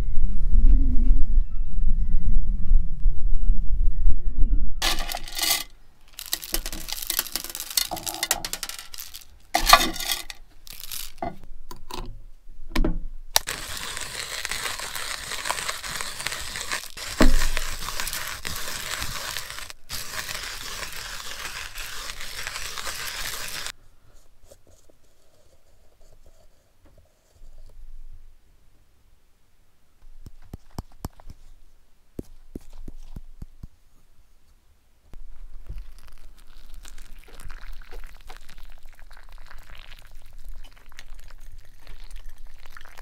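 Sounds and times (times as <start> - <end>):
coffee beans clicking and rustling: 4.8 - 11.4, 13.4 - 23.8, 35.3 - 43.0
hand grinder grinding beans: 4.8 - 11.4, 13.4 - 23.8.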